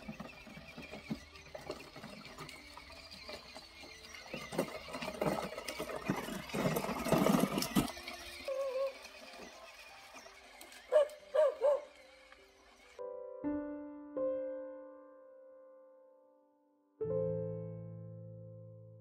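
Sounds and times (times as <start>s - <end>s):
toy car electric motor: 0.0s - 13.0s
wheels clicking and rattling: 0.0s - 13.0s
animal squeal: 7.9s - 12.2s.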